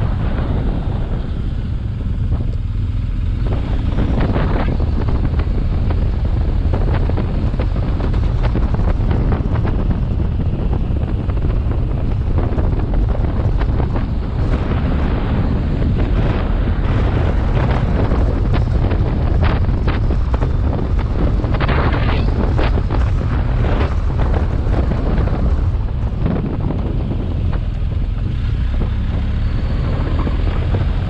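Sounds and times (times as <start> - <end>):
motorcycle engine running: 0.0 - 31.0
wind buffeting microphone: 0.0 - 31.0.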